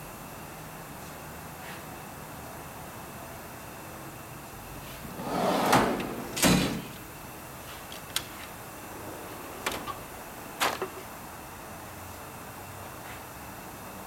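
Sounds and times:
metal drawer sliding shut: 0:04.9 - 0:07.1, 0:08.1 - 0:11.1.

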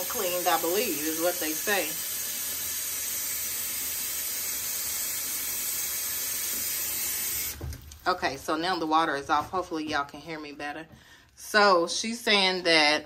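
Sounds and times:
tap running into sink: 0:06.3 - 0:08.1.

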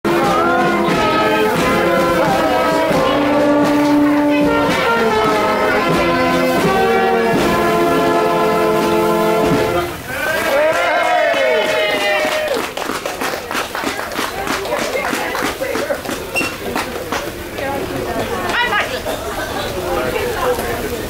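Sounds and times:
brass band playing: 0:00.0 - 0:11.3.

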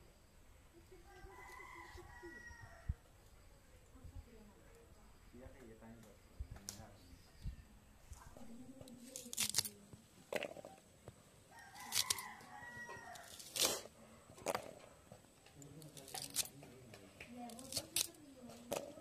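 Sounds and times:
rooster crowing: 0:01.0 - 0:03.0, 0:11.5 - 0:13.8
stems snapping on a blade: 0:08.8 - 0:09.8, 0:11.8 - 0:12.3, 0:12.9 - 0:14.6, 0:15.5 - 0:19.0.

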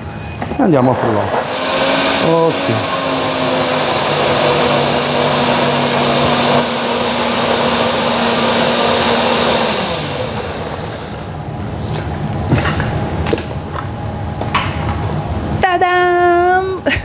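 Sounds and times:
blender motor running: 0:00.8 - 0:11.4.

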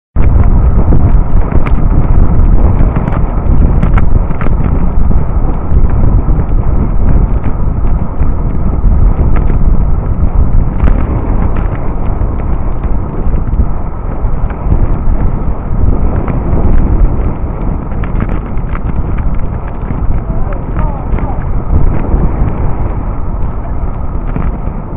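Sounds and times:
wind buffeting microphone: 0:00.1 - 0:24.9
scattered clicks and knocks: 0:17.6 - 0:22.6.

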